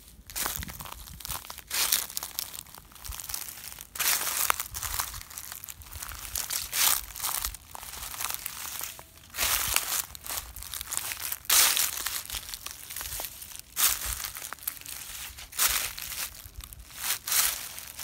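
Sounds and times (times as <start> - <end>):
footsteps crunching through dry leaves: 0.0 - 18.0.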